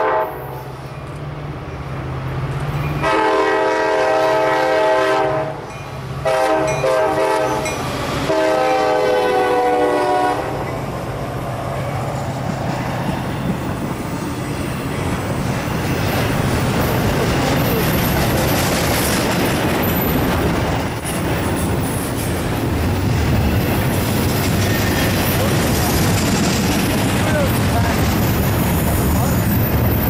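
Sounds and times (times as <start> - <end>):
train air horn chord: 0.0 - 0.6, 3.0 - 5.6, 6.2 - 7.6, 8.3 - 10.6
freight cars rumbling past: 5.5 - 30.0.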